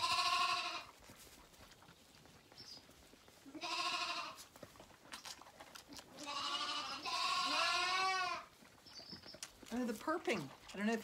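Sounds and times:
lambs bleating: 0.0s - 1.0s, 3.4s - 4.5s, 6.1s - 8.6s.

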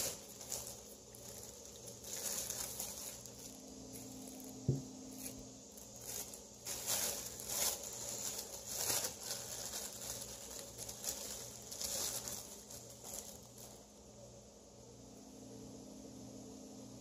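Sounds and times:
plastic bag crinkling: 0.0s - 14.1s.

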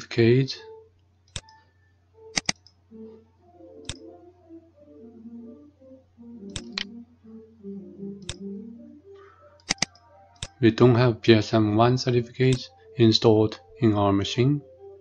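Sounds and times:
faint tune: 0.0s - 15.0s
computer mouse clicking: 1.3s - 1.7s, 2.3s - 2.8s, 3.8s - 4.0s, 6.5s - 6.9s, 8.2s - 8.4s, 9.6s - 10.6s.

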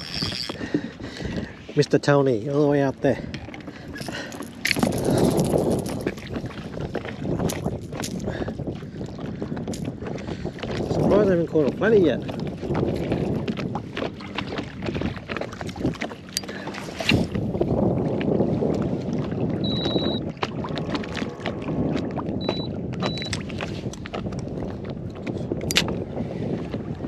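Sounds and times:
water splashing against boat hull: 0.0s - 27.0s
wind on microphone: 0.0s - 27.0s
short high beeps: 19.6s - 20.2s, 22.4s - 23.4s.

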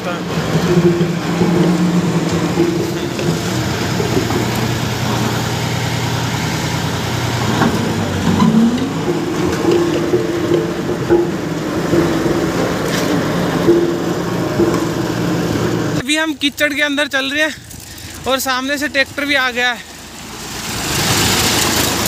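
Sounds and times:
road roller engine running: 0.0s - 22.0s.

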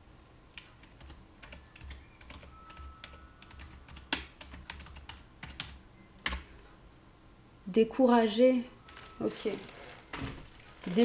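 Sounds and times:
computer keyboard typing: 0.5s - 6.5s.

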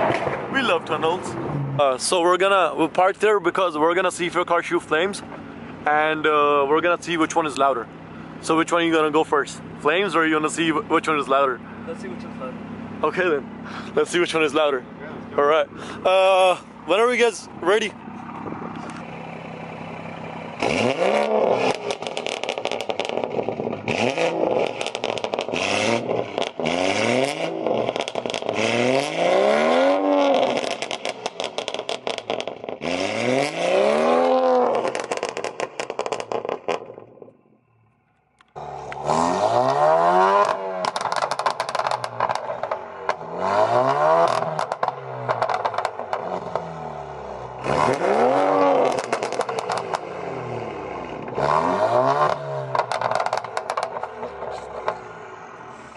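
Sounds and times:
exhaust crackling pops: 0.0s - 1.2s, 20.5s - 26.7s, 27.6s - 28.6s, 30.2s - 32.9s, 34.5s - 39.7s, 40.4s - 46.8s, 47.6s - 50.2s, 52.2s - 55.2s
car exhausts revving: 0.0s - 37.5s, 38.4s - 55.9s.

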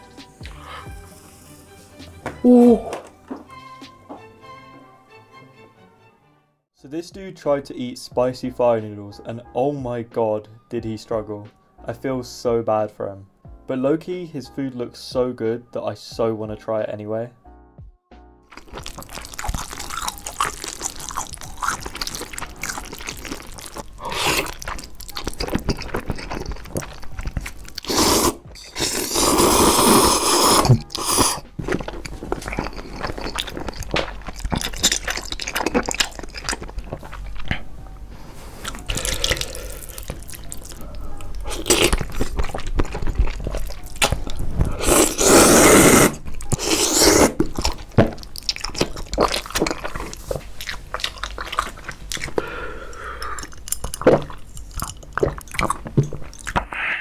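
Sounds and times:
wet chewing: 18.5s - 37.8s, 38.6s - 56.9s
noodle slurping: 18.6s - 37.7s, 38.6s - 56.8s.

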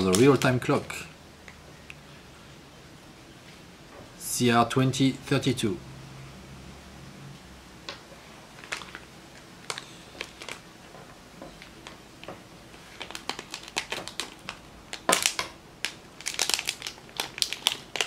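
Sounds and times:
plastic bags crinkling: 0.0s - 1.0s, 8.5s - 10.7s, 12.7s - 18.0s.

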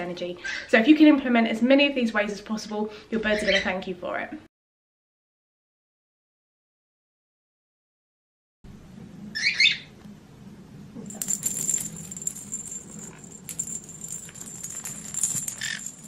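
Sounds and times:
jingle ball bell rattling: 11.1s - 16.0s.

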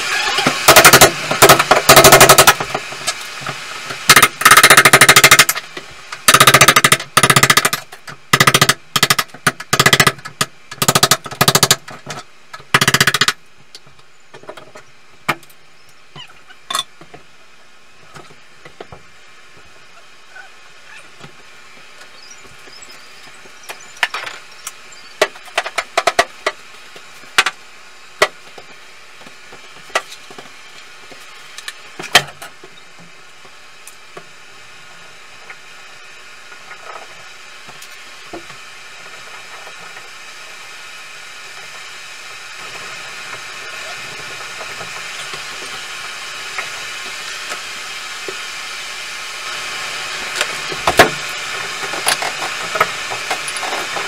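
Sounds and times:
steady hiss: 0.0s - 54.0s
sharp knocks and clatters: 6.2s - 15.5s.

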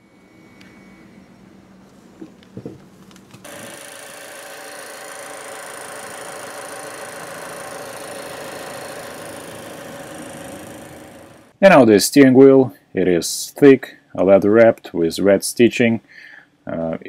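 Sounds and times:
car whirring hum: 5.0s - 11.5s.

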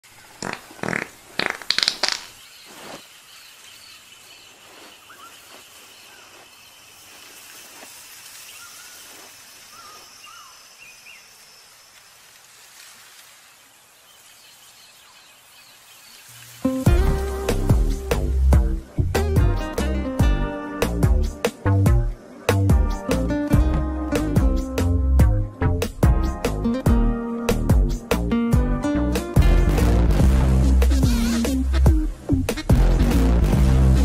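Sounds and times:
loud sharp crackles: 0.4s - 3.0s
bird chirps: 0.4s - 7.3s, 8.4s - 11.7s
music: 16.6s - 34.0s.

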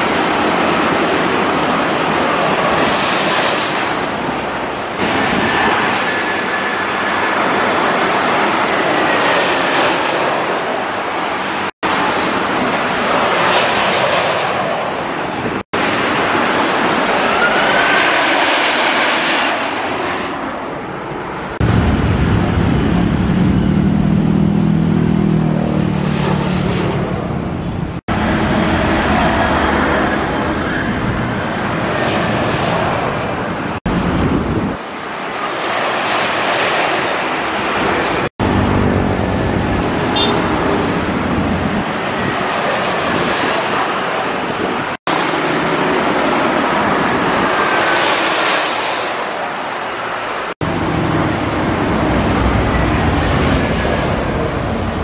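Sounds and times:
motorbikes and cars passing: 21.6s - 31.3s, 38.1s - 42.3s, 50.6s - 55.0s.

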